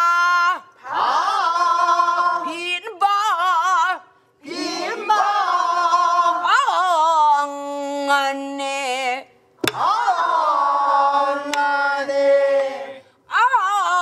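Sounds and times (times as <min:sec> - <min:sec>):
group singing unaccompanied: 0:00.8 - 0:02.8, 0:04.4 - 0:07.0, 0:09.6 - 0:13.1.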